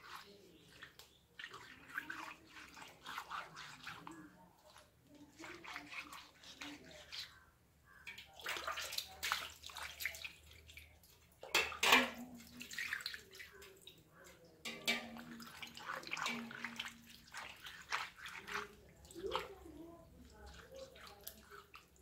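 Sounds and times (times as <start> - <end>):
hands scrubbing fish: 0.0 - 22.0
water splashing: 0.0 - 22.0.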